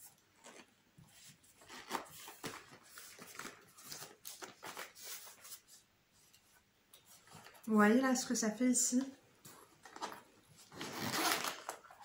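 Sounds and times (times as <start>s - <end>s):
metal zipper drawn: 10.7s - 12.0s.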